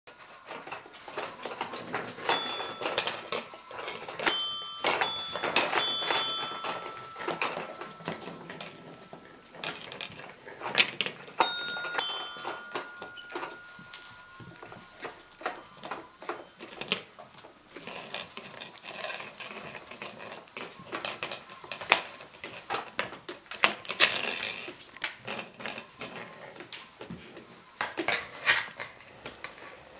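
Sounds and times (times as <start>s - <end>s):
puppies knocking and scuffling: 0.2s - 28.9s
toy piano notes: 1.1s - 16.8s.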